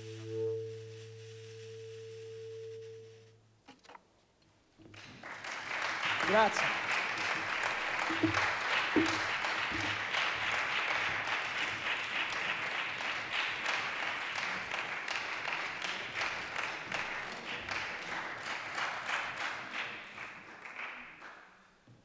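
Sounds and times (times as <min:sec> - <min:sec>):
audience applause: 0:04.9 - 0:21.5.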